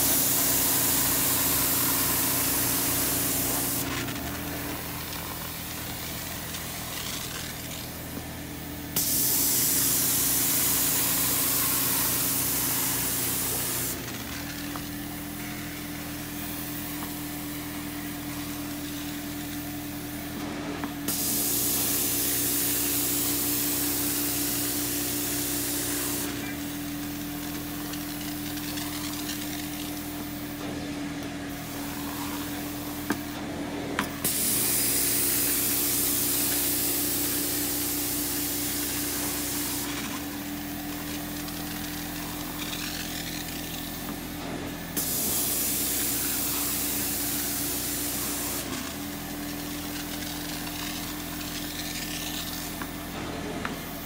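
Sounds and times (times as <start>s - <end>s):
spray and suction hiss: 0.0s - 8.1s, 8.9s - 14.2s, 21.1s - 26.7s, 34.2s - 44.4s, 45.0s - 53.0s
carpet cleaner motor hum: 0.0s - 54.0s.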